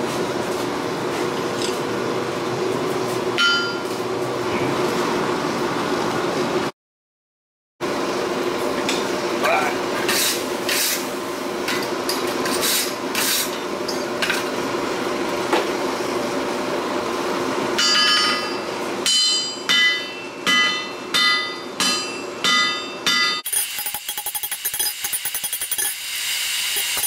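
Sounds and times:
hammer ringing on hot steel: 0:03.4 - 0:03.8, 0:17.8 - 0:23.4.

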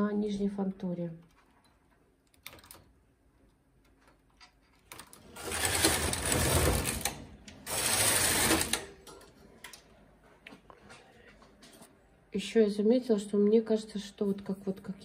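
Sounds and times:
knitting machine carriage pushed: 0:04.9 - 0:09.0.

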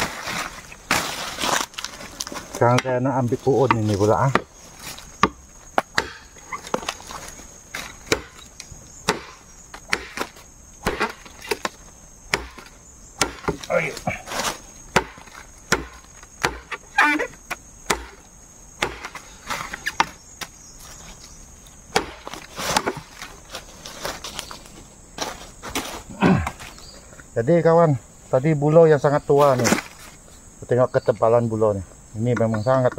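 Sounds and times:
machete chopping bamboo: 0:03.6 - 0:04.5, 0:05.1 - 0:07.0, 0:07.8 - 0:18.2, 0:18.8 - 0:20.5, 0:21.9 - 0:23.2
wood splitting and splintering: 0:03.7 - 0:18.2, 0:18.8 - 0:20.2, 0:21.9 - 0:23.4.

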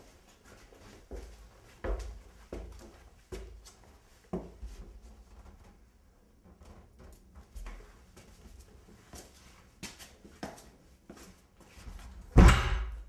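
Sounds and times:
footsteps climbing stairs: 0:00.0 - 0:05.7
door banging shut: 0:12.4 - 0:13.0.

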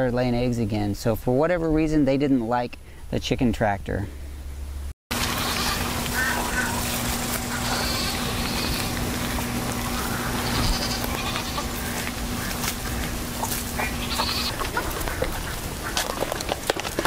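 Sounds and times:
steady low hum: 0:00.4 - 0:17.0
goats bleating: 0:05.2 - 0:16.1.

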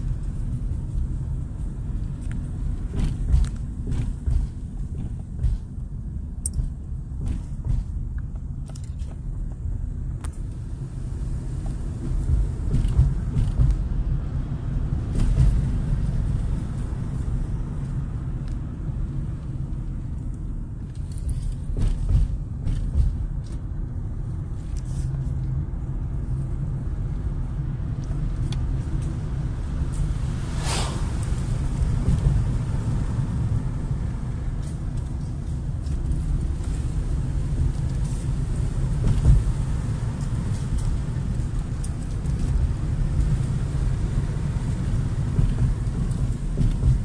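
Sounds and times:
engine and road rumble: 0:00.0 - 0:47.0
light clicks and rattles: 0:06.4 - 0:10.4.

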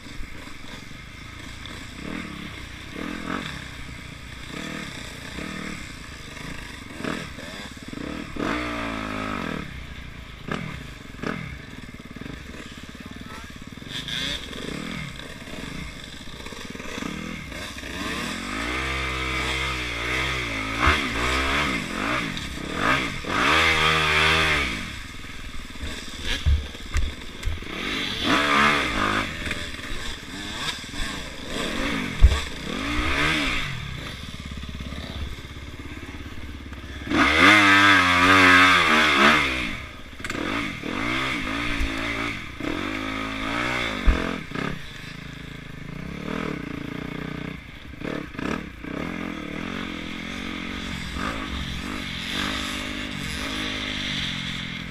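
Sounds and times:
dirt bike engine revving: 0:00.0 - 0:54.9.

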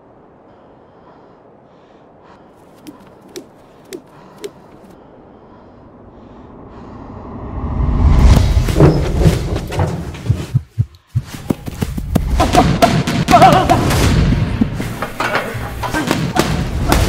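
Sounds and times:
rising swell: 0:05.9 - 0:08.6.

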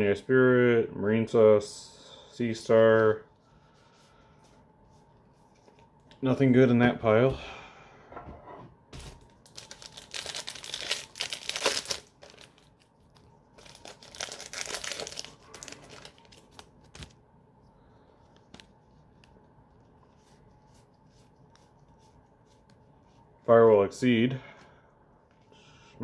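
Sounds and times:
foil pack tearing and crinkling: 0:09.0 - 0:12.9, 0:13.6 - 0:17.2.

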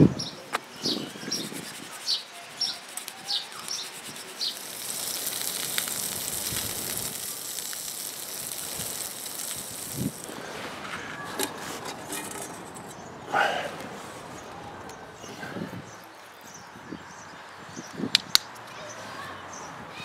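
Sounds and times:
bird chirping: 0:00.0 - 0:07.0
bacon sizzling in a frying pan: 0:03.0 - 0:10.4.

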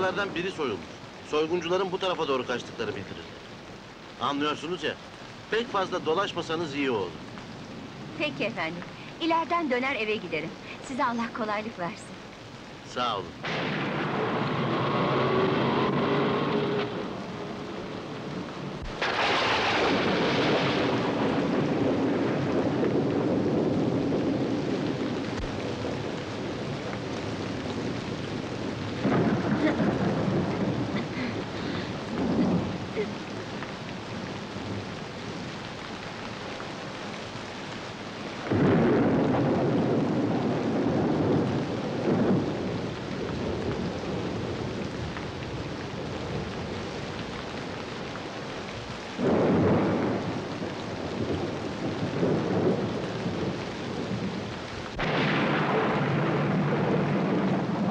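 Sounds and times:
steady rain: 0:00.0 - 0:57.9
thunder claps rumbling: 0:13.4 - 0:35.5, 0:38.2 - 0:47.8, 0:49.2 - 0:57.9.

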